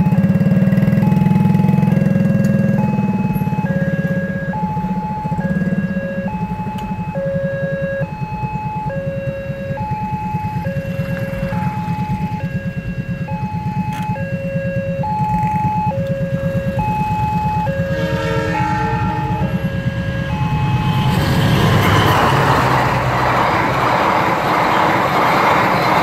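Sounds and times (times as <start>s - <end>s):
level crossing two-tone alarm: 0.0s - 22.7s
low engine rumble: 14.9s - 26.0s.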